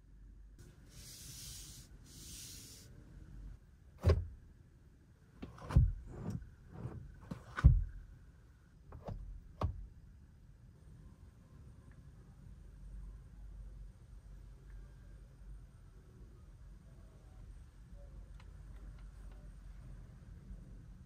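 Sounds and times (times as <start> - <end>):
hand rubbing trim panel: 5.4 - 8.0.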